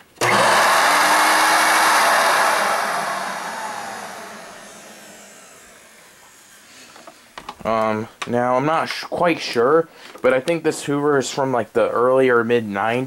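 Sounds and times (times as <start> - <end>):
motor winding down whine: 0.2 - 7.2
vacuum cleaner motor running: 0.2 - 7.3.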